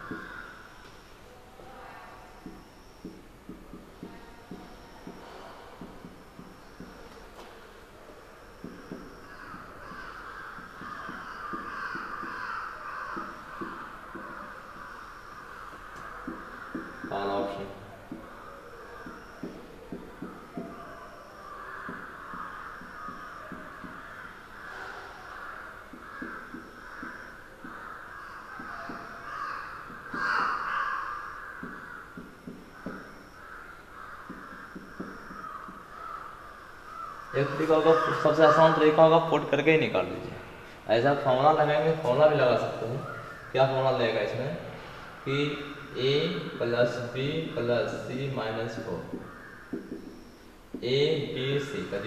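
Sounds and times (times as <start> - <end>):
marker writing on whiteboard: 2.4 - 7.1, 8.5 - 17.3, 25.9 - 27.8, 34.2 - 36.0
marker squeaking on whiteboard: 8.5 - 17.4, 18.1 - 39.0.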